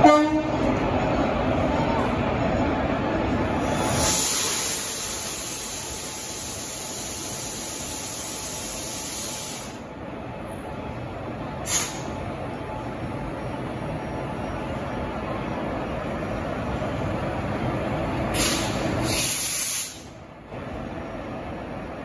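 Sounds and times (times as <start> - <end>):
compressed air hissing: 3.6 - 9.8, 11.6 - 12.1, 18.3 - 20.1
sharp burst of air hiss: 3.6 - 9.8, 11.6 - 12.1, 18.3 - 20.2.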